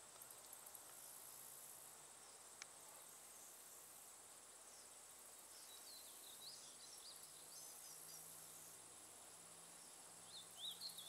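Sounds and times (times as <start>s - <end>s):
faint bird twittering: 4.7s - 8.8s, 9.8s - 11.0s.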